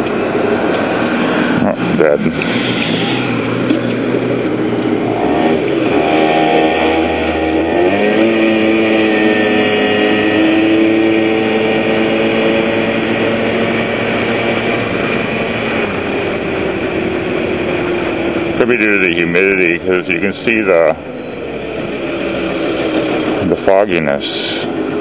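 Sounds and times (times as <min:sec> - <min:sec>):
road noise: 0:00.0 - 0:25.0
scooter engine revving: 0:00.0 - 0:25.0.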